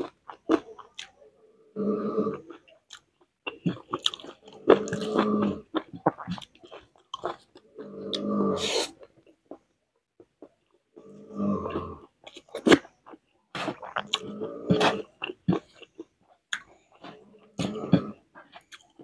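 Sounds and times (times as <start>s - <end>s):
wet chewing and mouth clicks: 0.0s - 1.2s, 2.3s - 19.0s.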